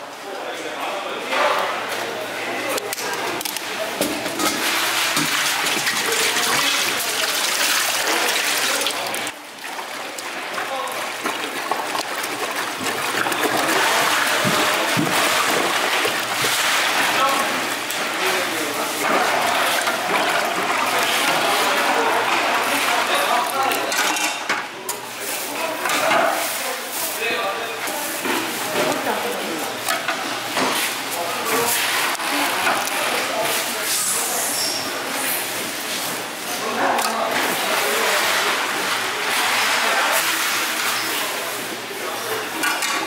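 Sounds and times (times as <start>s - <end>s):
people talking: 0.0s - 43.0s
water running and splashing: 4.4s - 23.8s.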